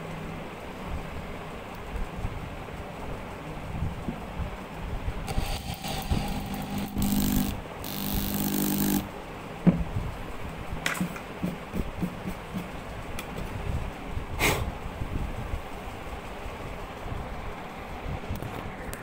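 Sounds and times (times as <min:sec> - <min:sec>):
power drill driving screw into wood: 0:05.3 - 0:09.1.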